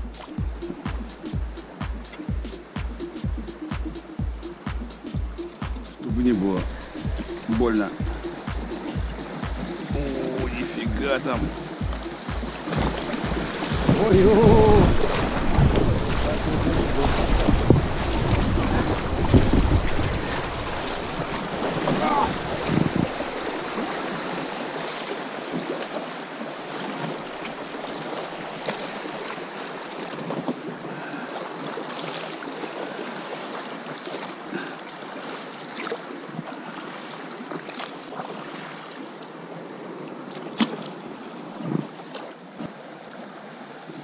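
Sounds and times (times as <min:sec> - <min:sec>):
river rushing and splashing: 0:00.0 - 0:44.0
wind buffeting microphone: 0:06.1 - 0:23.9.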